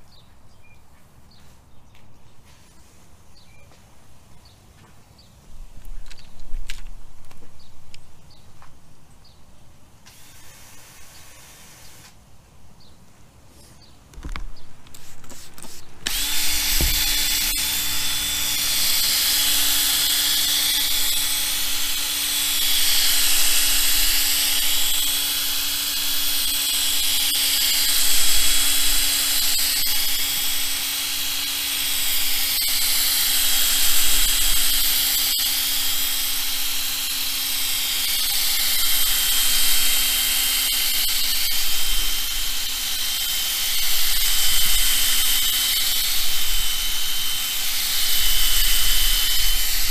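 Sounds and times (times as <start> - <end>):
power drill motor whine: 10.1 - 12.1, 16.0 - 49.9
pad hissing on plastic: 10.1 - 12.2, 14.9 - 16.0.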